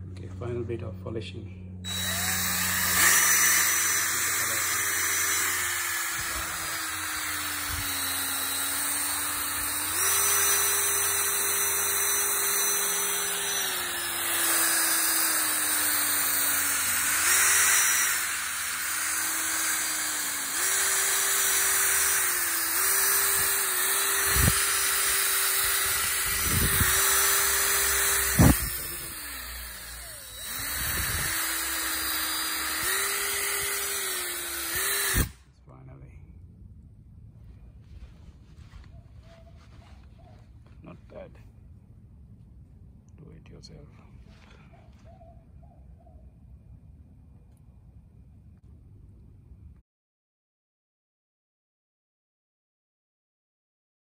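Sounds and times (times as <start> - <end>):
cordless drill motor whine: 1.8 - 35.4.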